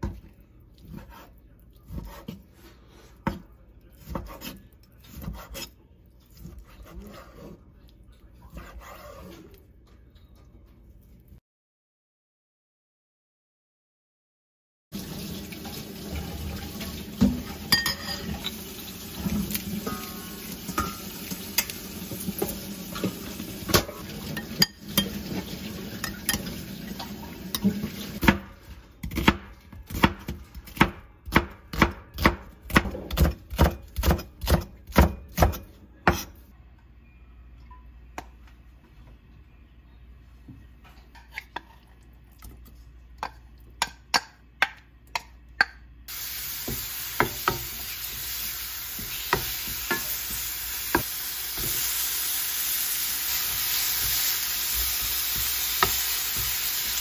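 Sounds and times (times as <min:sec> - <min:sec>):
wooden spatula stirring: 0:00.0 - 0:09.7
chicken sizzling in frying pan: 0:15.0 - 0:28.2, 0:46.1 - 0:57.0
metal spoon stirring in glass bowl: 0:17.7 - 0:18.3
knife chopping on wooden board: 0:28.2 - 0:36.3.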